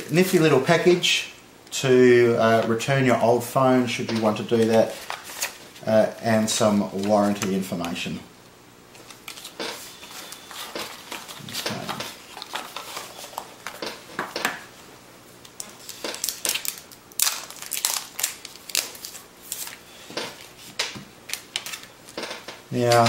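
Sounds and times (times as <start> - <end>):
cardboard and plastic rustling: 6.9 - 8.0, 8.9 - 14.4.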